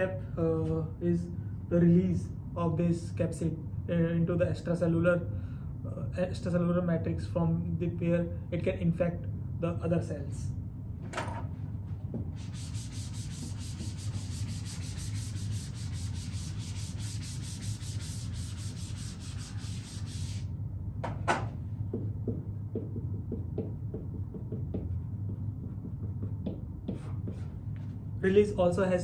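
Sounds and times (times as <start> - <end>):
eraser scrubbing a whiteboard: 12.3 - 20.5.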